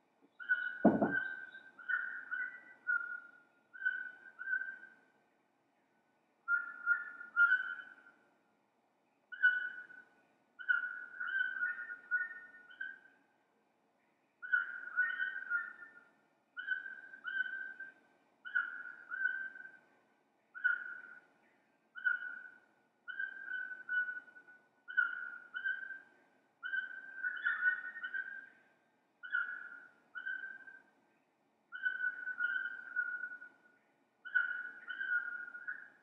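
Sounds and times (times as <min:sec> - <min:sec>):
whistled calls: 0:00.4 - 0:04.9, 0:26.6 - 0:28.6, 0:31.7 - 0:33.6, 0:34.2 - 0:36.0.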